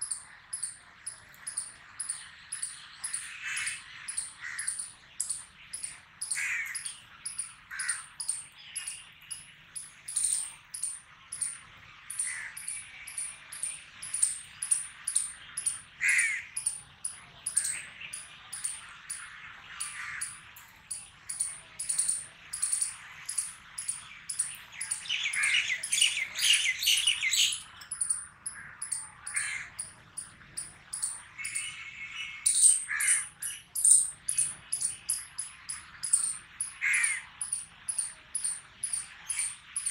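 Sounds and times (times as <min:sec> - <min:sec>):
high-pitched bird chirps: 0:00.0 - 0:39.9
crows cawing: 0:03.1 - 0:04.9, 0:06.2 - 0:07.0, 0:07.6 - 0:08.4, 0:12.1 - 0:12.8, 0:16.0 - 0:16.6, 0:19.8 - 0:20.5, 0:28.5 - 0:29.9, 0:32.6 - 0:33.5, 0:36.2 - 0:37.3.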